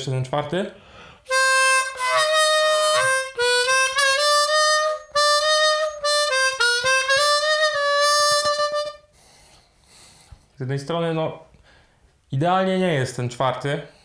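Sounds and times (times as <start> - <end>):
harmonica sustained notes: 1.3 - 9.1.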